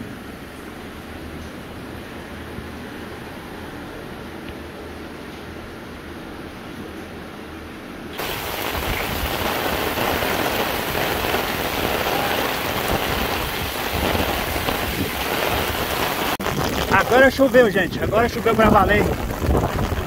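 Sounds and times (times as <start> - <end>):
heavy rain on pavement: 8.1 - 20.0.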